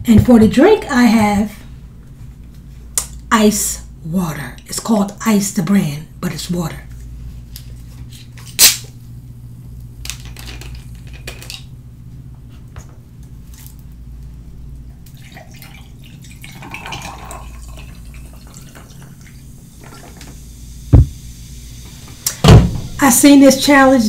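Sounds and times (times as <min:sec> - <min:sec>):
plastic bottle cap cracking open: 0:08.5 - 0:08.9.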